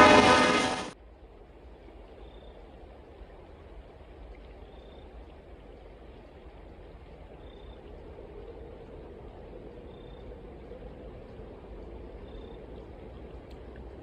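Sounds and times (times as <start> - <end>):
train horn chord: 0.0 - 1.0
low rumble: 0.0 - 1.4
river flowing: 0.0 - 14.0.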